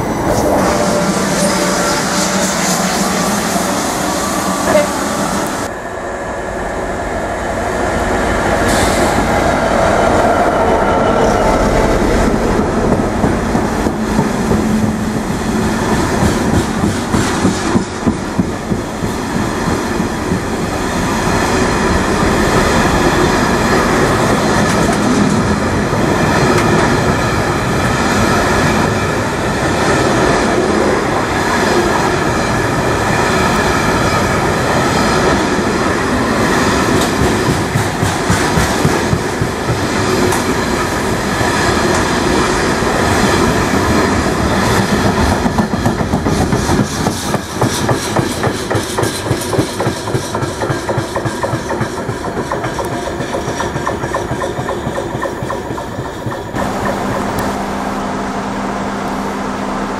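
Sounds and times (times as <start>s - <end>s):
freight train wheels rumbling: 0.0s - 59.9s
rapid clickety-clack: 15.9s - 20.5s, 36.9s - 40.6s, 44.6s - 57.4s.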